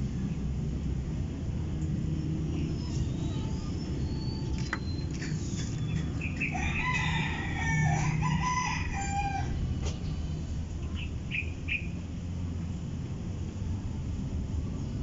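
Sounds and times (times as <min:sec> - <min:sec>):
steady low rumble: 0:00.0 - 0:15.0
rooster crowing: 0:05.8 - 0:09.6.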